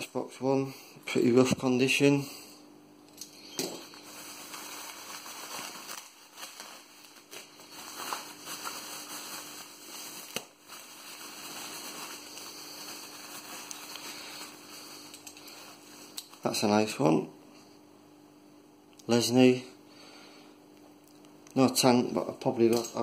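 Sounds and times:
bubble wrap crinkling: 0:03.4 - 0:16.6.

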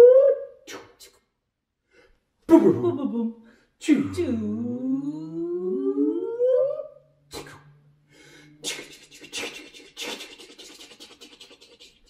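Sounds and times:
rising voiced glide: 0:04.2 - 0:07.7
hissing breathy mouth noise: 0:08.6 - 0:12.0.

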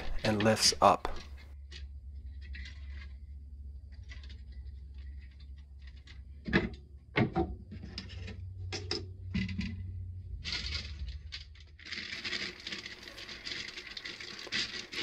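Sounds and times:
scrapes and rustles of handling: 0:00.0 - 0:06.8, 0:10.4 - 0:15.0.

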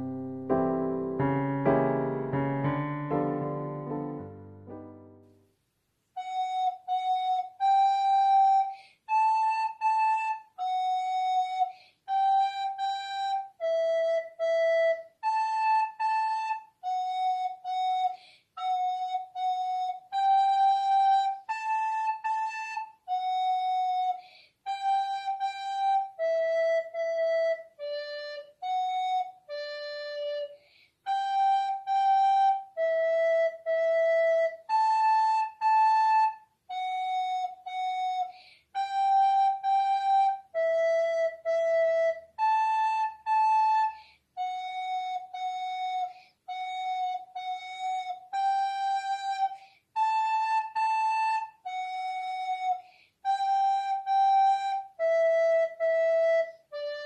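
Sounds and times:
recorder melody: 0:00.0 - 0:05.4.

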